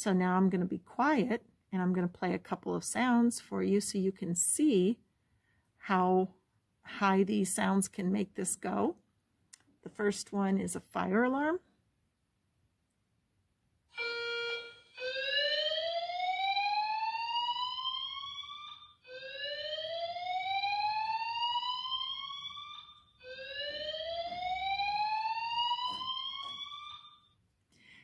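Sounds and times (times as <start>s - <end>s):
whooping fire alarm tone: 14.0s - 27.4s.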